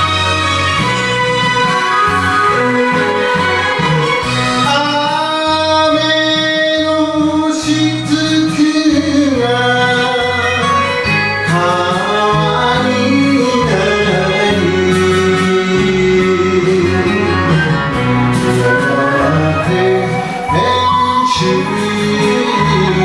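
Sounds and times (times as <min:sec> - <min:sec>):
karaoke backing track: 0:00.0 - 0:23.0
man singing into microphone: 0:04.5 - 0:23.0.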